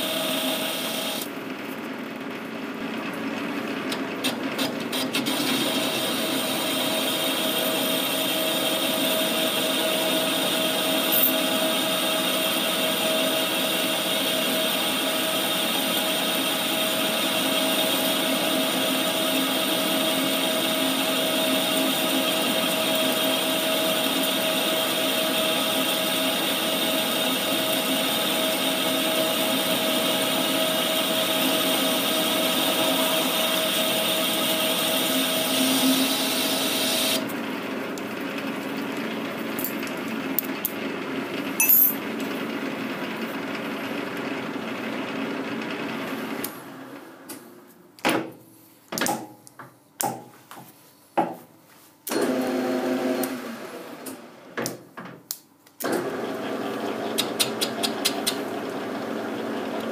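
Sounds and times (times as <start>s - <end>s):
machine running whine: 5.6s - 13.4s.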